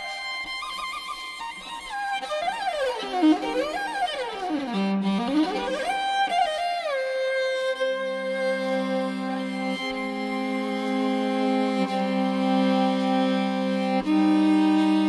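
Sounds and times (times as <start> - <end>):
bowed fiddle melody with slides: 0.0 - 15.0.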